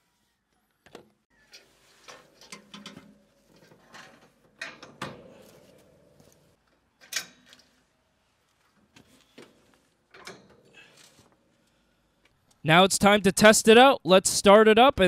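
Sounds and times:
metal clanks and clicks: 0:01.5 - 0:05.6, 0:07.0 - 0:07.7, 0:10.1 - 0:11.3.

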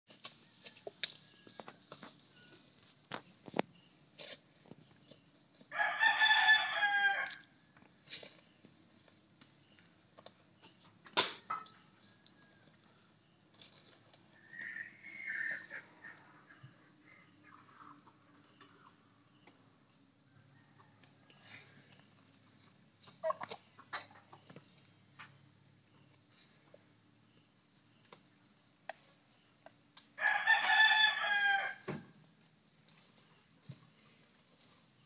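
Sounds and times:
insects droning: 0:00.1 - 0:35.0
rooster crowing: 0:05.7 - 0:07.5, 0:14.4 - 0:16.7, 0:30.2 - 0:32.0.

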